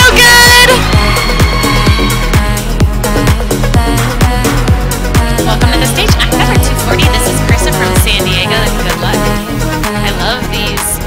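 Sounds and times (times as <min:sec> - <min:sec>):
punchy kick drum: 0:00.0 - 0:08.5
electronic dance music: 0:00.0 - 0:11.0.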